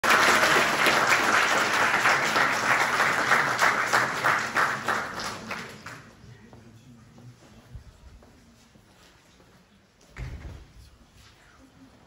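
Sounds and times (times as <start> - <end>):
audience applause: 0.0 - 6.1.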